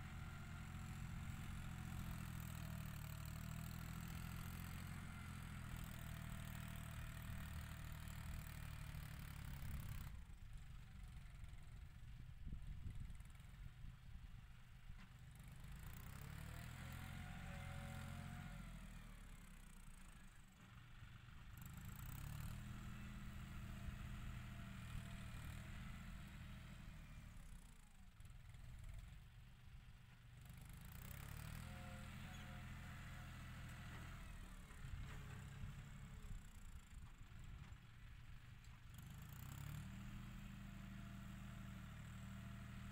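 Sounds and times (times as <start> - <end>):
tractor diesel engine running: 0.0 - 14.7, 28.4 - 38.9.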